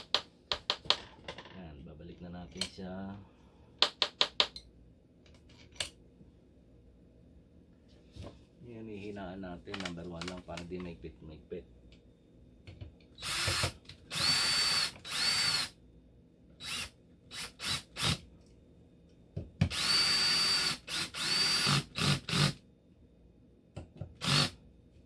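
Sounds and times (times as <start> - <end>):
cordless drill whining: 13.2 - 15.7, 16.6 - 18.2, 19.7 - 22.6, 24.2 - 24.6.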